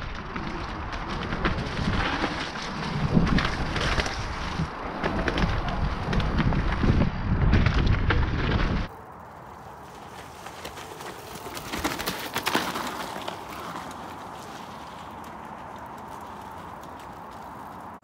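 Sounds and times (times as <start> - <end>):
wind buffeting microphone: 0.0 - 8.9
tyres rushing on dirt: 0.0 - 18.0
bike rattling and knocking: 9.8 - 18.0.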